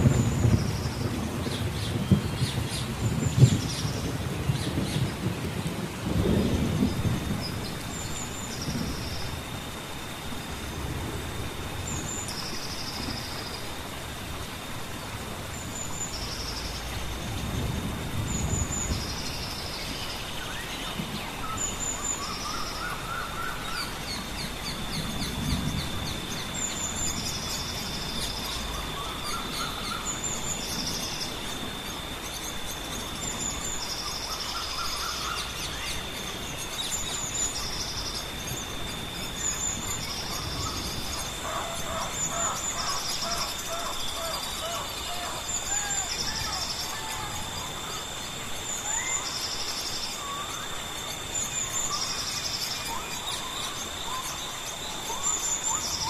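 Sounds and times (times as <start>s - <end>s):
background hiss: 0.0s - 56.0s
high insect drone: 0.0s - 56.0s
birds trilling and whistling: 18.3s - 56.0s.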